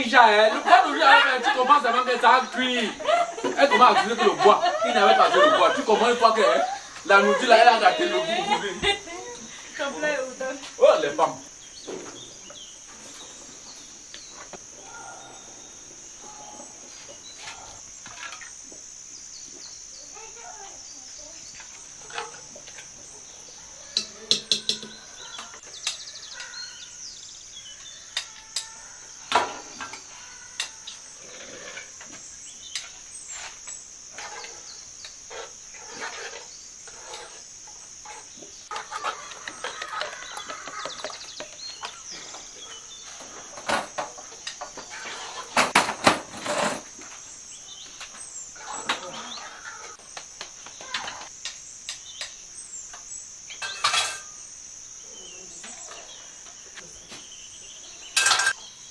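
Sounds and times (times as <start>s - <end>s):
crickets chirring: 0.0s - 58.9s
spoons clinking on metal pots: 24.0s - 25.0s, 53.6s - 54.3s, 58.2s - 58.6s
chickens clucking: 36.9s - 45.8s, 48.6s - 50.0s.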